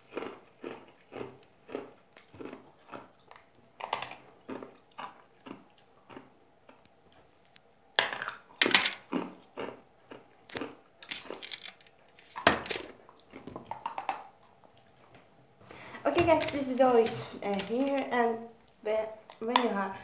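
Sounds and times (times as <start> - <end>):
ice being chewed: 0.0 - 15.2.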